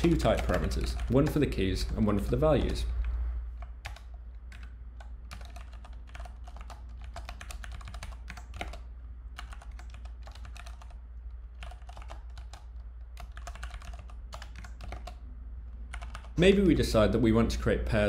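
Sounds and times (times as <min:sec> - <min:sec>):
keyboard typing: 0:00.0 - 0:15.2, 0:15.9 - 0:16.4
low steady hum: 0:00.0 - 0:18.0.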